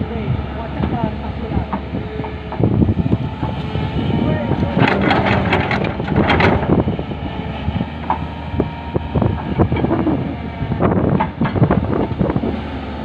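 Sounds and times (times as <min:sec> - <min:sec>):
excavator diesel engine running: 0:00.0 - 0:13.0
knocks and clatter: 0:04.7 - 0:06.8.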